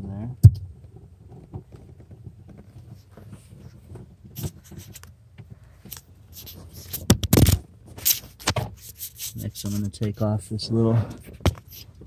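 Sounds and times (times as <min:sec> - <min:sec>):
faint scrapes and clicks: 0:01.5 - 0:07.1, 0:07.9 - 0:10.3
rough scuffing rub: 0:08.0 - 0:10.0.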